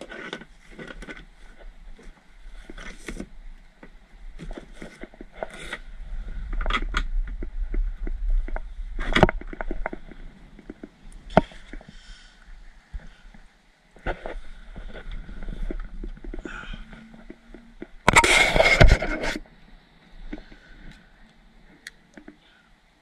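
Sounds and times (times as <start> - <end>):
wind rumbling on microphone: 1.5 - 19.5.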